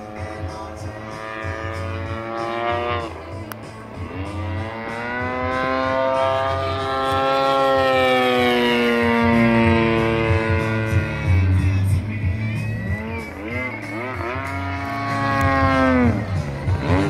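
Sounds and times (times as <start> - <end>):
model plane engine drone: 0.0 - 17.0.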